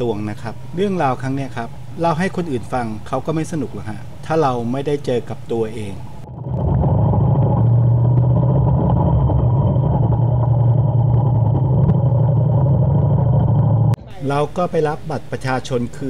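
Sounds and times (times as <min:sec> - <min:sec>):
motorcycle engine droning: 0:06.2 - 0:14.0.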